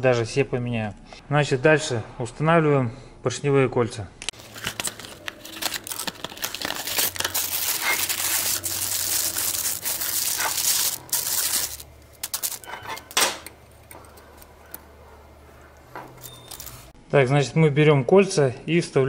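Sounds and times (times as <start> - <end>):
packaging crinkling and tearing: 4.3 - 14.8, 16.2 - 16.9
small metal parts clicking: 5.1 - 14.8, 16.2 - 16.9.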